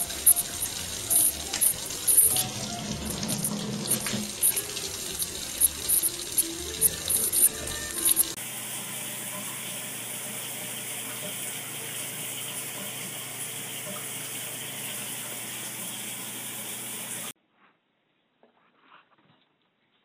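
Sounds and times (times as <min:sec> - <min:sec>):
running water rushing: 0:00.0 - 0:08.4.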